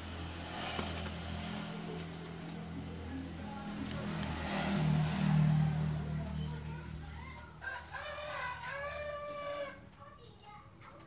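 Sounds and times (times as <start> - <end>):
low engine hum: 0.0 - 8.2
rooster crowing: 7.6 - 9.9.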